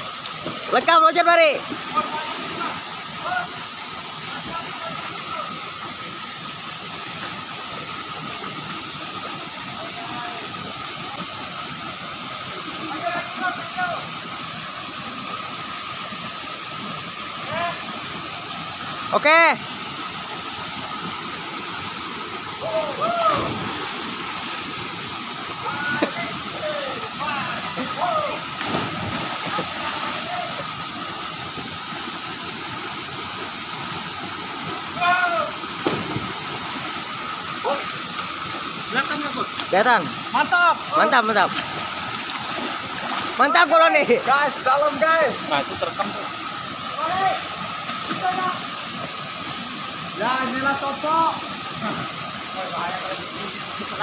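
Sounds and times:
waterfall pouring into pool: 0.0s - 54.0s
person splashing into water: 23.2s - 24.0s, 28.6s - 30.2s, 35.8s - 36.7s.

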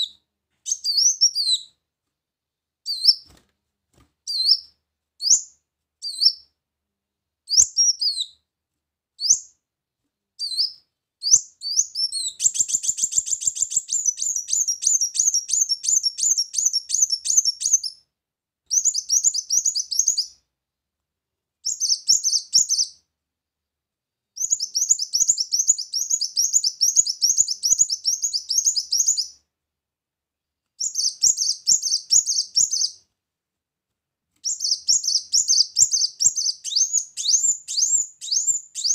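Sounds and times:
bird chirping: 0.0s - 1.8s, 2.8s - 3.4s, 4.3s - 6.5s, 7.5s - 8.4s, 9.2s - 9.6s, 10.4s - 18.0s, 18.7s - 20.4s, 21.6s - 23.0s, 24.4s - 29.4s, 30.8s - 33.0s, 34.4s - 38.9s
bird twittering trills: 11.3s - 17.9s.

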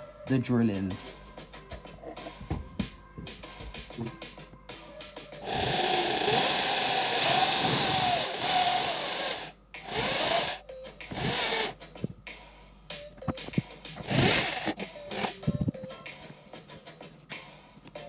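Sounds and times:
drill boring through plastic: 5.4s - 11.8s, 14.0s - 15.3s
knocks and clicks: 13.1s - 16.0s.

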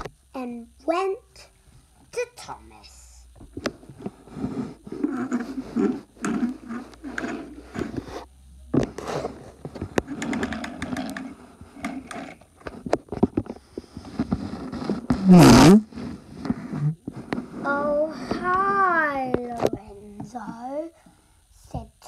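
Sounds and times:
toy wheels scraping on wooden floor: 3.9s - 18.8s
small clicks and knocks: 9.7s - 14.4s.

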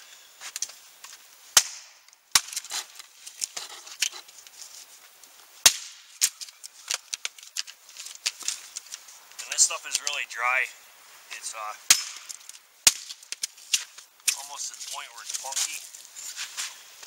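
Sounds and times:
hatchet striking wood: 1.6s - 2.6s, 5.7s - 6.0s, 11.9s - 13.1s
wood tapping and cracking: 5.7s - 10.2s.

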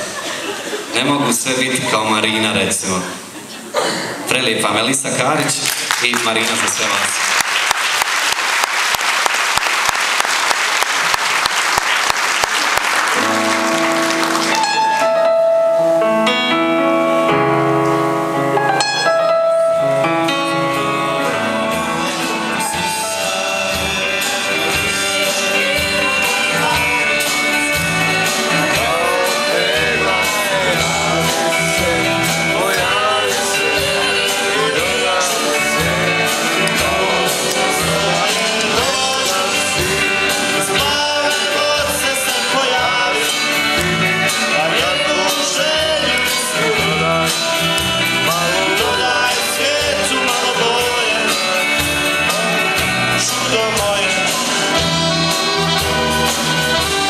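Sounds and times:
live band playing: 0.0s - 57.0s
audience applauding: 5.4s - 15.2s
person singing: 18.6s - 57.0s.

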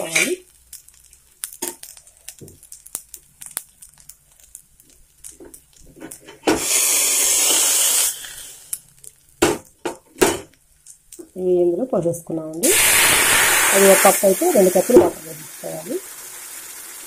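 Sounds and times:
tapping and scraping in pan: 0.0s - 6.6s, 9.4s - 11.3s
water hissing in hot pan: 0.0s - 9.8s, 12.5s - 17.0s.

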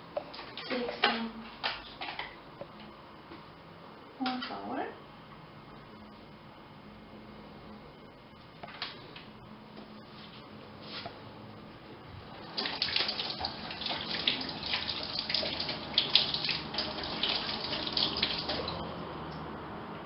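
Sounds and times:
tap running into metal sink: 12.6s - 18.8s.

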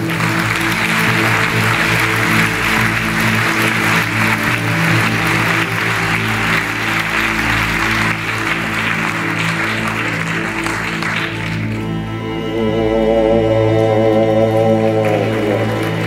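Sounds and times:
audience applause: 0.0s - 12.7s, 13.8s - 16.0s
slow low sustained music: 0.0s - 16.0s.

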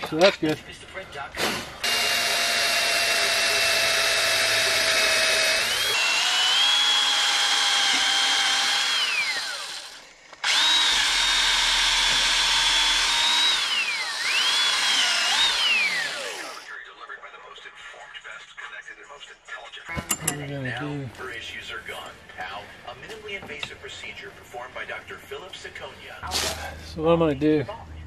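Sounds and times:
electric drill whining: 1.5s - 16.7s.

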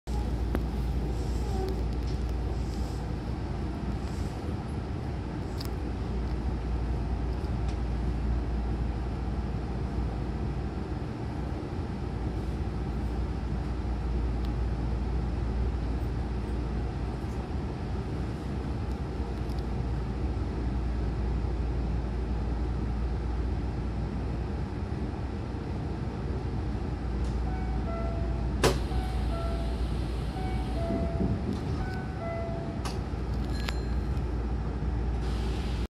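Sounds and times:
stopped train humming: 0.1s - 35.9s
train doors sliding shut: 27.2s - 34.1s, 35.2s - 35.8s.

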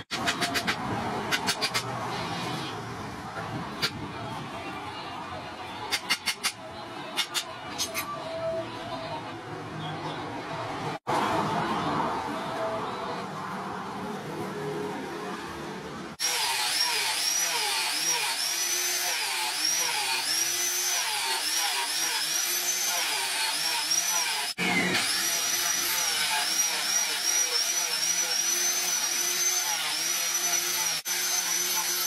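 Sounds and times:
angle grinder sanding wood: 16.2s - 32.0s.

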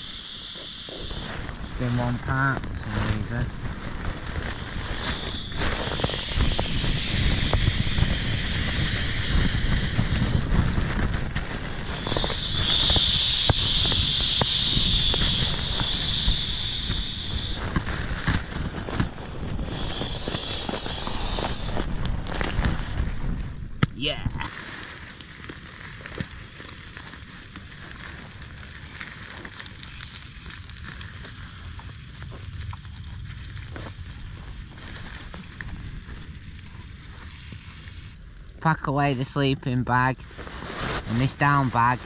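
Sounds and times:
air hissing from a valve: 0.0s - 1.6s, 4.6s - 10.6s, 11.8s - 17.7s, 19.6s - 21.9s
nylon rustling and crackling: 1.2s - 6.6s, 9.7s - 13.4s, 17.0s - 23.5s, 24.5s - 38.1s.

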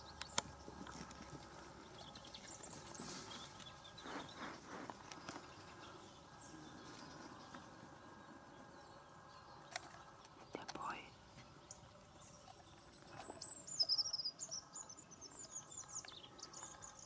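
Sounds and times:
faint high bird chirps: 8.7s - 17.0s.

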